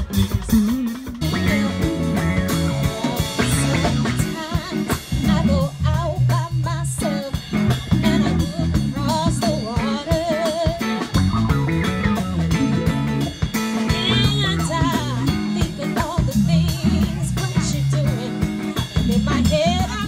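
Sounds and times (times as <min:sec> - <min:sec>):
live soul-funk band: 0:00.0 - 0:20.0
woman singing with vibrato: 0:01.4 - 0:11.0, 0:13.8 - 0:20.0.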